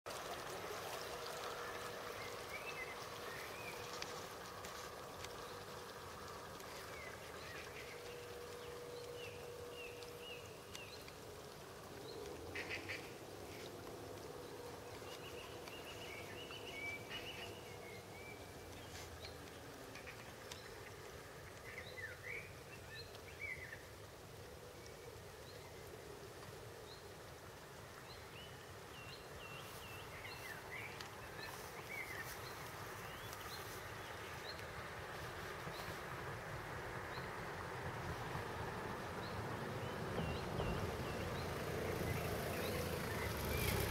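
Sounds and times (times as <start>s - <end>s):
wild birds calling: 0.2s - 24.0s.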